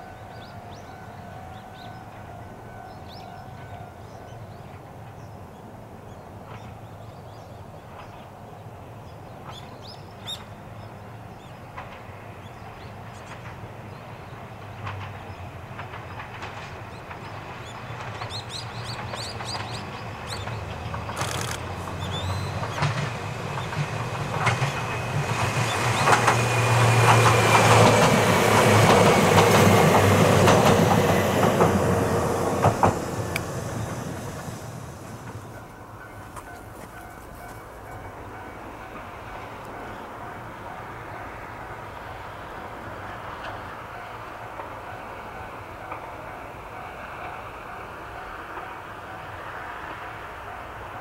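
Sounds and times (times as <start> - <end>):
electric train whine: 10.4 - 51.0
wheels clacking over rail joints: 11.7 - 41.5.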